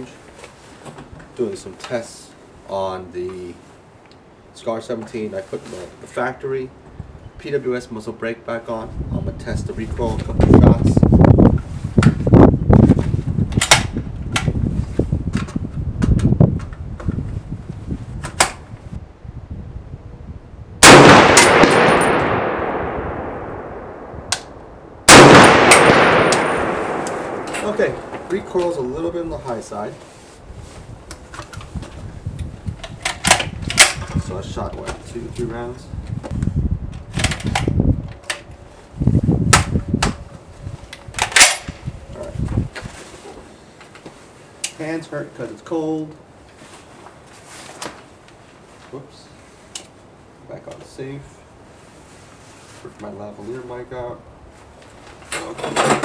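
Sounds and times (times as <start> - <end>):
rifle shots with echo: 20.8 - 28.6
rifle metallic clicks: 25.1 - 28.8, 41.0 - 41.7.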